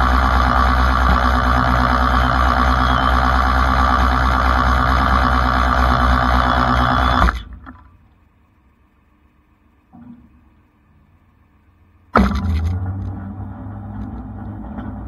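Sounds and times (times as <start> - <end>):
winch mechanical drone: 0.0 - 8.0, 12.1 - 15.0.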